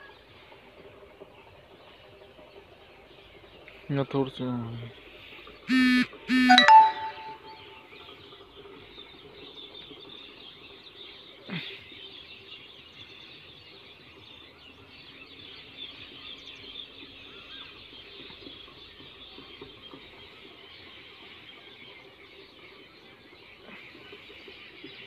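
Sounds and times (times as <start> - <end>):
sound gliding down in pitch: 6.3 - 7.7.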